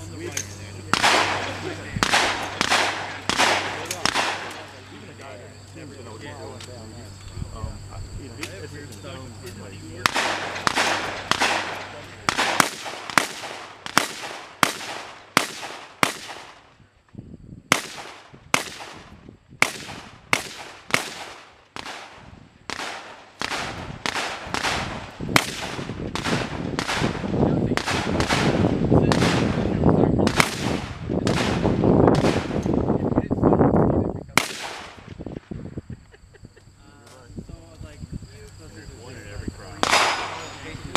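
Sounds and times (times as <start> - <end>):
steady rough noise: 0.0 - 16.9
distant gunshots: 0.9 - 4.8, 10.0 - 16.8, 17.7 - 32.8, 34.4 - 35.2, 39.8 - 40.5.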